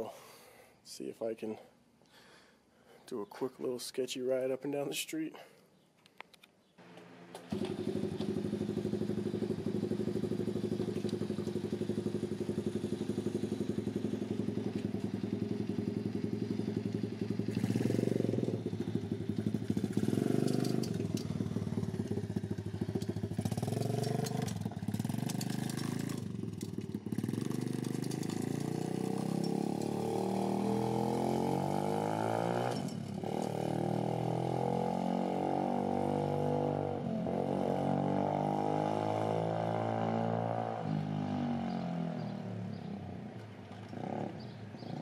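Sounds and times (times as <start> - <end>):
small engine revving: 7.4 - 42.9.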